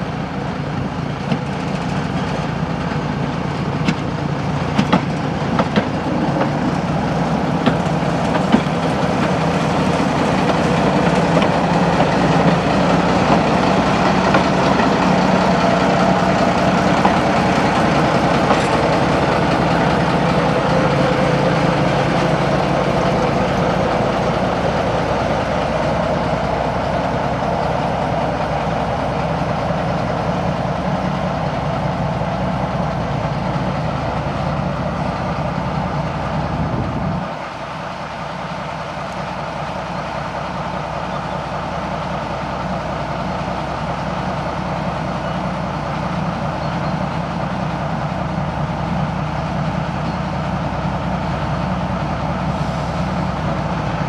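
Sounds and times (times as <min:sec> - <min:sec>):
diesel locomotive engine running: 0:00.0 - 0:54.0.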